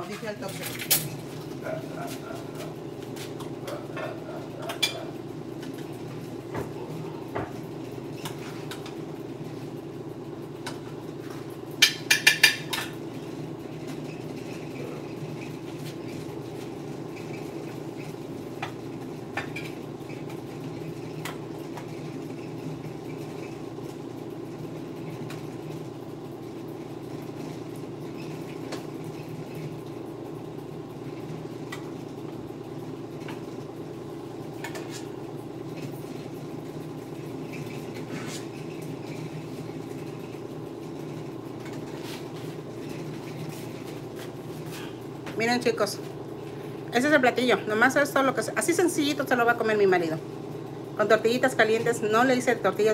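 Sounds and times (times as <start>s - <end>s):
steady low hum: 0.0s - 52.9s
metal spoon clinking on pots: 11.8s - 13.0s.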